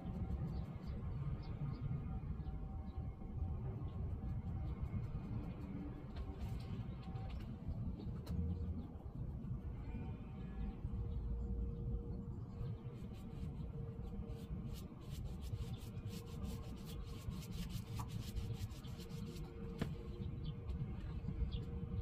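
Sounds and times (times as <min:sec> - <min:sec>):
brush scratching on wood: 0:12.9 - 0:19.5.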